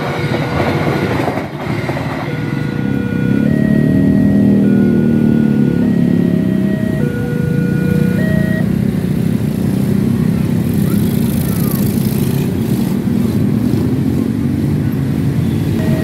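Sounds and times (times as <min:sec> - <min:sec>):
two-pitch crossing warning alarm: 0:01.6 - 0:09.2, 0:15.4 - 0:16.0
motorcycle engines pulling away: 0:02.2 - 0:16.0.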